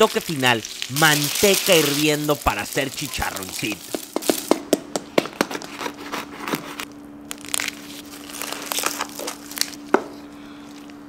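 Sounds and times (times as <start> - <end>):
knife crunching crackling skin: 5.5 - 9.9.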